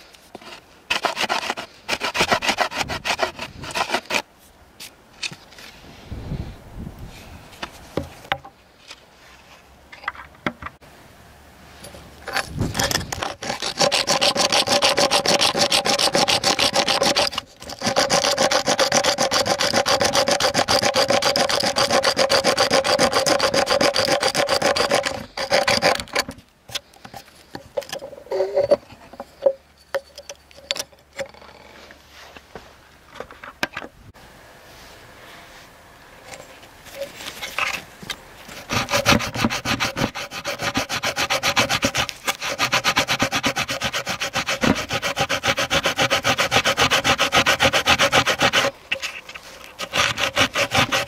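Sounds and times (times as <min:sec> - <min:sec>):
flint rasping against wood: 0:00.0 - 0:04.3, 0:12.2 - 0:31.5, 0:38.4 - 0:51.0.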